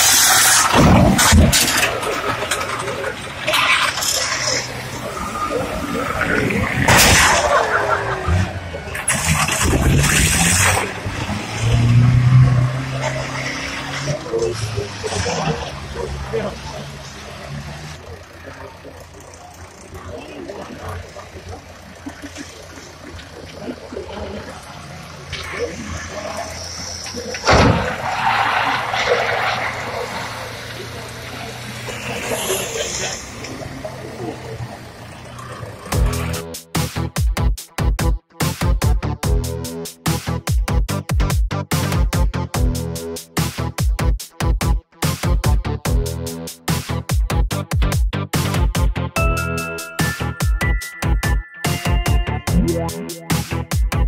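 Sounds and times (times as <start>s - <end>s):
tyres skidding: 0.0s - 37.2s, 45.0s - 54.0s
racing van engines revving: 0.0s - 54.0s
loud thump: 27.5s - 28.0s.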